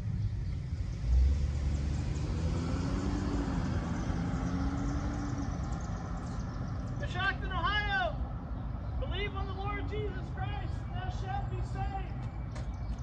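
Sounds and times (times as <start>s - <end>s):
car engine passing: 0.0s - 9.0s.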